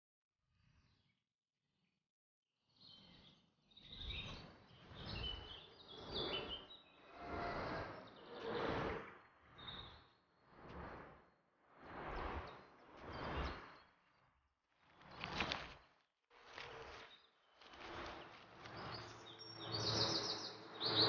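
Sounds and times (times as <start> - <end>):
small birds chirping: 2.7 - 7.0, 16.5 - 21.0.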